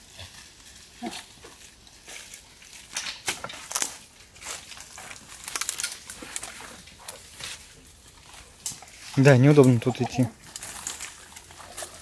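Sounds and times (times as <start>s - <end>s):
dry twigs snapping and crackling: 0.0s - 12.0s.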